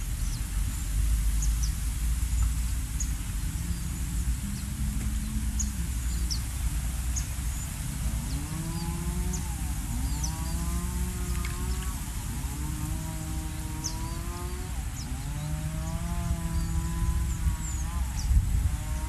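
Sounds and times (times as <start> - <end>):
steady low rumble: 0.0 - 19.0
cow mooing: 8.0 - 19.0.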